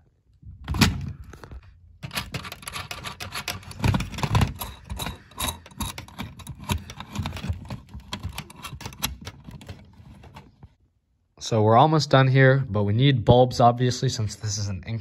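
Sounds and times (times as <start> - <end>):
metal nut scraping on threads: 2.0 - 10.5.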